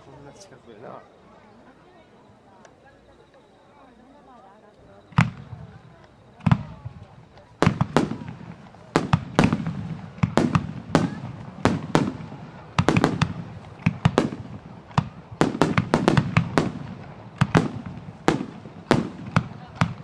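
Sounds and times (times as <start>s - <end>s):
firework shells bursting: 5.2s - 20.0s.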